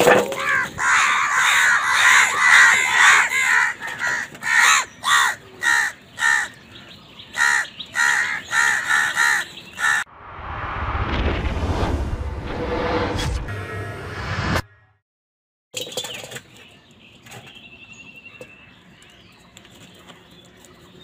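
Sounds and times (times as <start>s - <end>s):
crows cawing: 0.4s - 6.6s, 7.3s - 10.1s.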